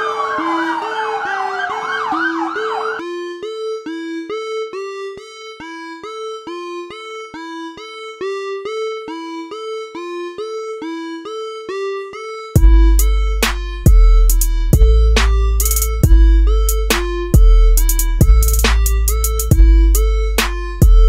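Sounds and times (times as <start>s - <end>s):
police siren yelping: 0.0s - 3.1s
electronic background music: 0.0s - 5.3s, 11.9s - 21.0s.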